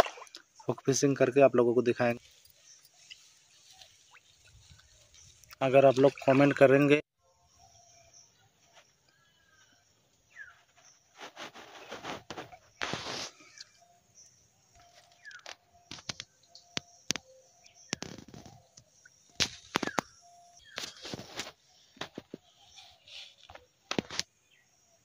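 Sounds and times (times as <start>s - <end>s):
fish splashing at water surface: 0.0s - 0.5s
birds calling faintly: 0.0s - 25.0s.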